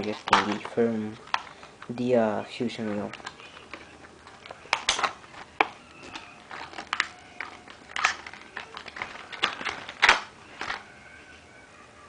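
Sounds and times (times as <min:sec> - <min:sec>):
packaging handled: 0:02.7 - 0:10.9.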